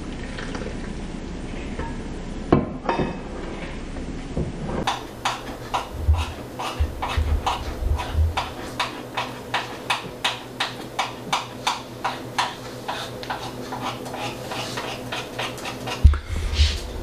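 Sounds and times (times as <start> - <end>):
faint steady hum: 0.0 - 17.0
utensil beating batter in bowl: 4.8 - 17.0.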